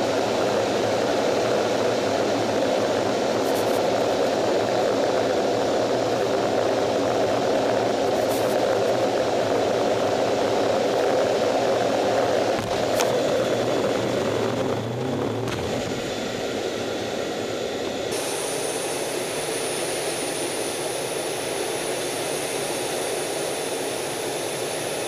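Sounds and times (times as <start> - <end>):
jet engines rushing: 0.0 - 25.0.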